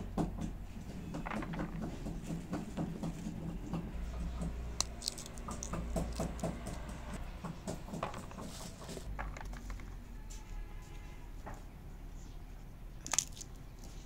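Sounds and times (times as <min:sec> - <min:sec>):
pea pods splitting: 0:04.6 - 0:06.9, 0:13.0 - 0:14.0
peas dropping into plastic colander: 0:13.0 - 0:13.6.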